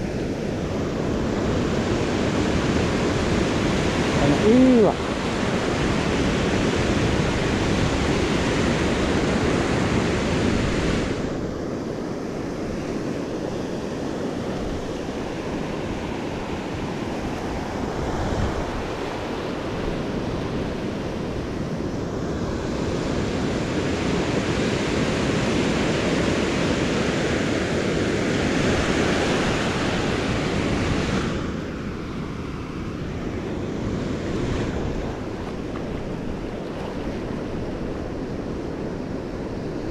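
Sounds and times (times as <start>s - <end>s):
surf washing over sand: 0.0s - 39.9s
wind buffeting microphone: 0.0s - 39.9s.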